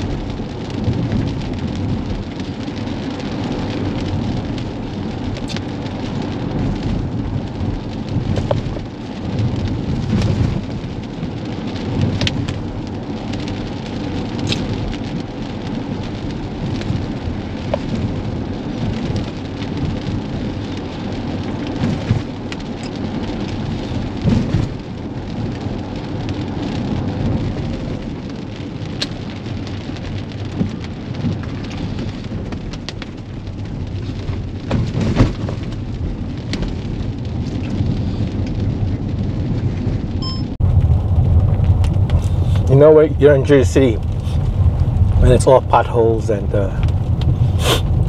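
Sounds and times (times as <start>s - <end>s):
rain pattering on a car roof: 0.0s - 48.0s
tyres on a wet road: 0.0s - 48.0s.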